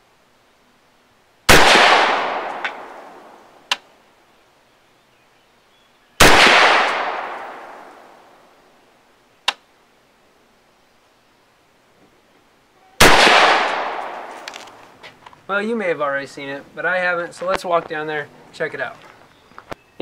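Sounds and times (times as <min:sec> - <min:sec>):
rifle shots echoing: 0:01.5 - 0:03.4, 0:06.2 - 0:08.2, 0:13.0 - 0:14.7.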